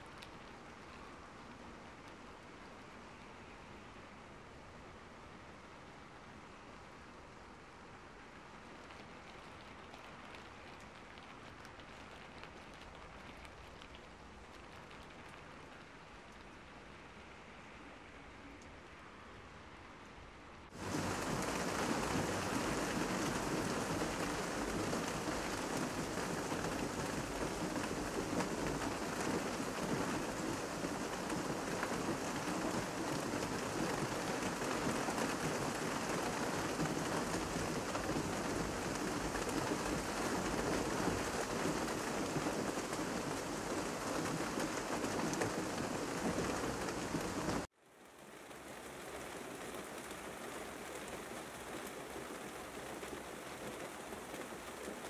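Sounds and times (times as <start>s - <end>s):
heavy rain falling: 20.7s - 55.0s.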